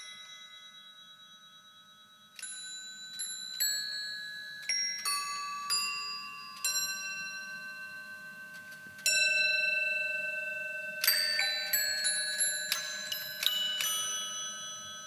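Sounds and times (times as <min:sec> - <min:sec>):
bells chiming: 0:00.0 - 0:15.0.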